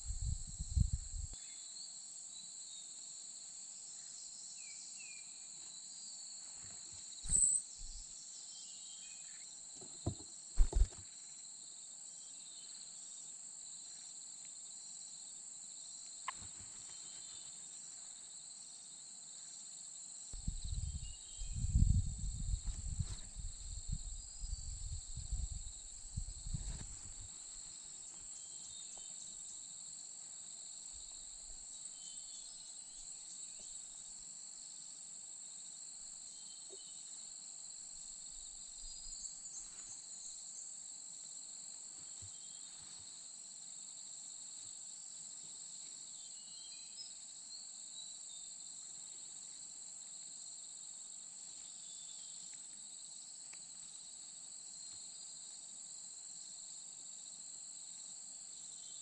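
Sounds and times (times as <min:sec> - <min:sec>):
insect chorus drone: 0:00.0 - 0:59.0
faint short chirps: 0:07.2 - 0:08.0.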